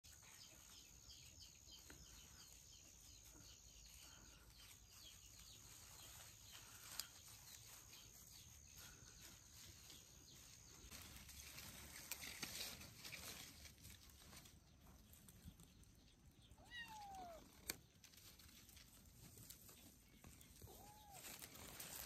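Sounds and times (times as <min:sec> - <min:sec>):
leaves and grass rustling: 0:00.0 - 0:22.0
rapid faint chirping: 0:00.1 - 0:11.6.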